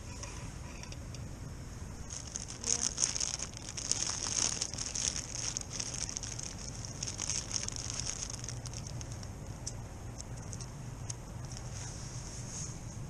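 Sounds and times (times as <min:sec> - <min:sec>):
plastic bag crinkling: 0:02.1 - 0:09.7.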